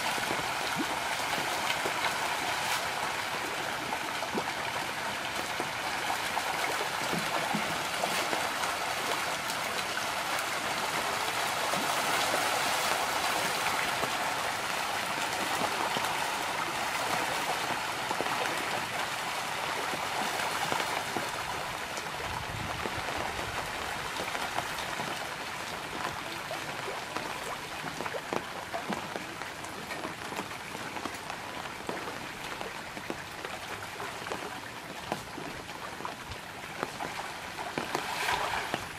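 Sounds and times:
fish splashing at water surface: 36.9s - 38.9s.

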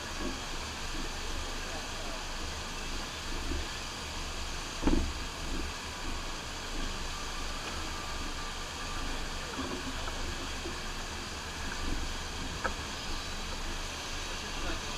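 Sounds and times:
rushing pumped water: 0.0s - 14.9s.

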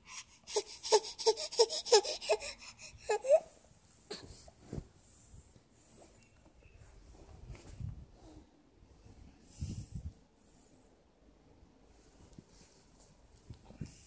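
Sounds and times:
baby breathy vocal sounds: 0.0s - 4.5s.

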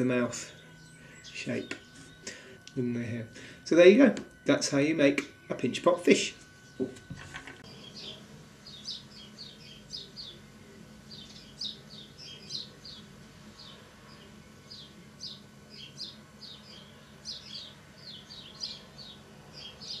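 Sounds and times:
faint low hum: 0.0s - 20.0s
small bird chirping: 7.6s - 20.0s.

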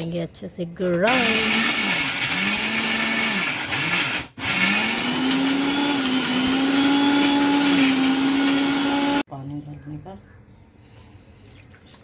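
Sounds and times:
mixer grinder grinding spices: 1.1s - 9.2s.

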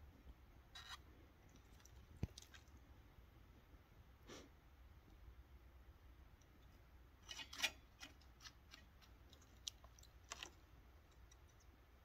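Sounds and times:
cat splashing water: 1.4s - 3.0s.

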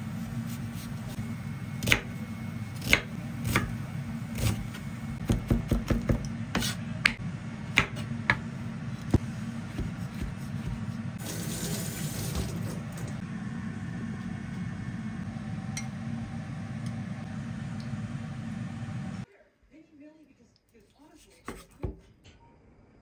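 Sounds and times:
knife chopping on wooden board: 2.8s - 3.8s, 4.4s - 10.8s.

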